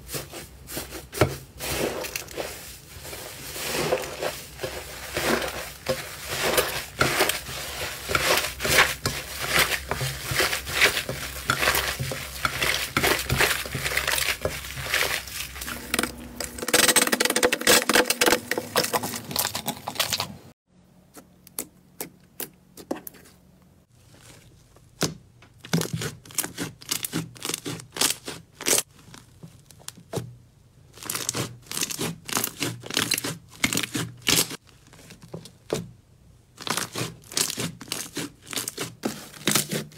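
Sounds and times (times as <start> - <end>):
slime crackling and tearing: 25.7 - 30.0, 30.9 - 35.2, 36.6 - 39.9.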